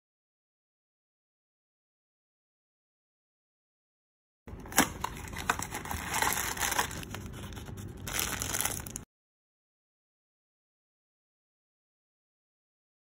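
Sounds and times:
plastic bag crinkling: 0:04.5 - 0:09.1.

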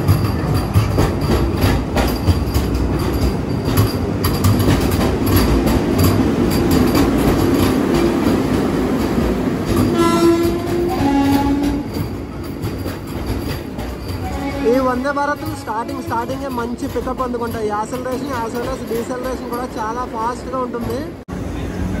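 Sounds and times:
train wheels clicking on rail joints: 0:00.0 - 0:21.2
two-note train horn: 0:09.8 - 0:12.0, 0:14.2 - 0:16.4.

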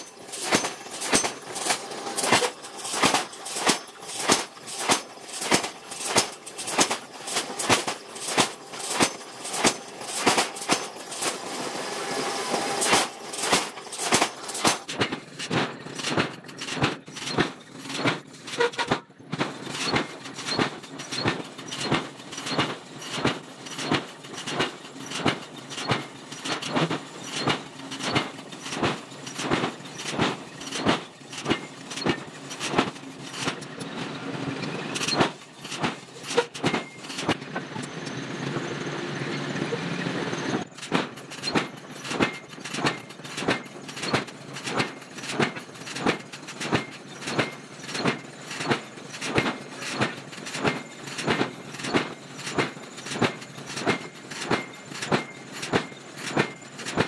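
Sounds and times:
forging hammer striking steel: 0:00.0 - 0:11.6, 0:12.3 - 0:19.1
steady machine noise: 0:00.0 - 0:57.0.

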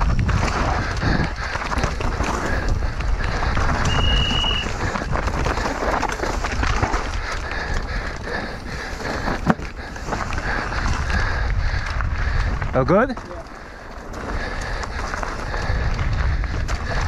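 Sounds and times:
wind on microphone: 0:00.0 - 0:13.1, 0:14.3 - 0:17.0
bike rattling: 0:00.0 - 0:17.0
tyres on dirt and rocks: 0:00.0 - 0:17.0
short high squeal: 0:03.9 - 0:04.6.

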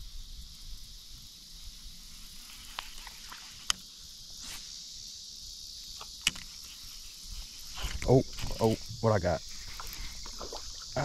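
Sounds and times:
insects buzzing: 0:00.0 - 0:11.0.

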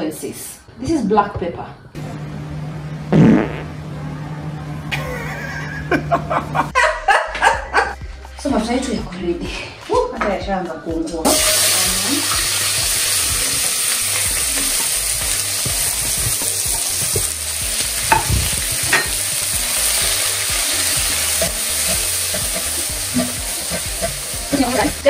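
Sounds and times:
onions sizzling in oil: 0:11.3 - 0:25.0.

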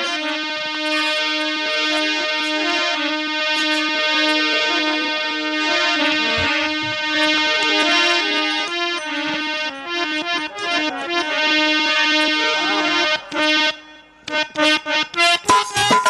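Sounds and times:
harmonium melody: 0:00.0 - 0:16.0
hand drum: 0:15.4 - 0:16.0.

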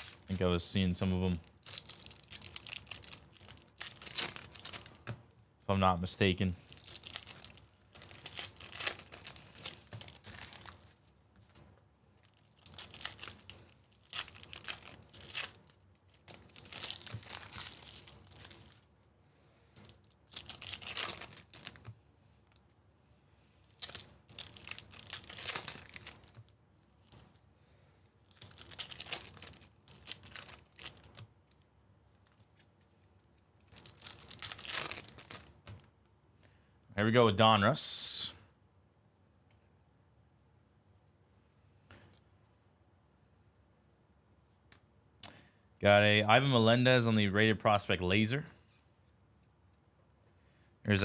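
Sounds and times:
foil wrappers tearing and crinkling: 0:00.0 - 0:00.3, 0:01.3 - 0:05.1, 0:06.6 - 0:11.1, 0:12.2 - 0:18.8, 0:19.8 - 0:21.9, 0:23.6 - 0:27.2, 0:28.3 - 0:31.2, 0:33.6 - 0:35.5.

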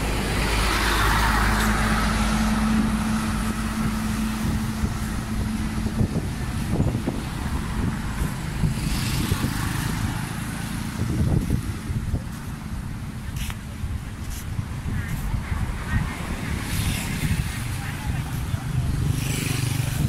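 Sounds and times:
coach engine humming: 0:00.0 - 0:15.7
street traffic: 0:00.0 - 0:20.0.

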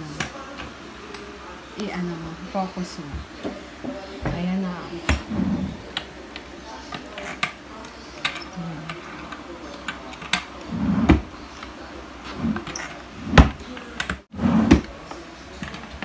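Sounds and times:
drawer knocking: 0:12.4 - 0:13.6.

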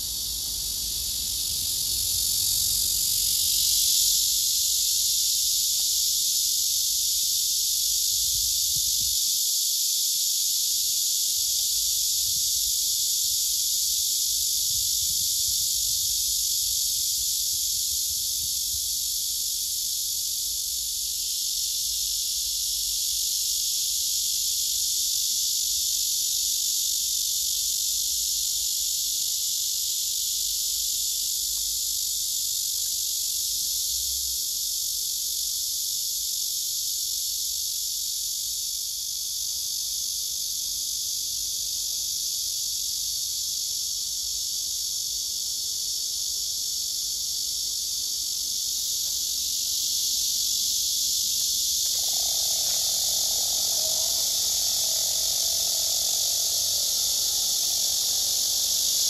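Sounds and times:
cicadas buzzing: 0:00.0 - 0:59.0.

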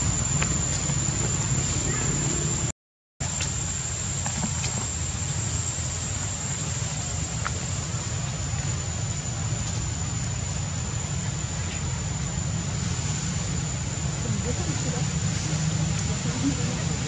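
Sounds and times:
high-pitched whine: 0:00.0 - 0:17.0
low rumble: 0:00.0 - 0:17.0.

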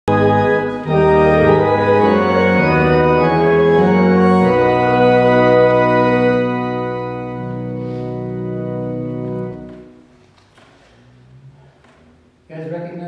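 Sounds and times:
church organ chords: 0:00.1 - 0:10.2.

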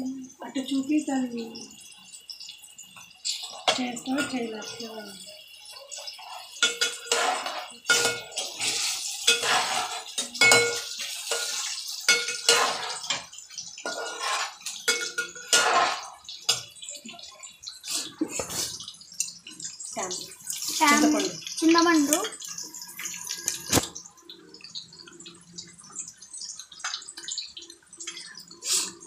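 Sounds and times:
onions sizzling in oil: 0:00.0 - 0:29.0
metal spoon scraping metal pan: 0:06.1 - 0:16.7.

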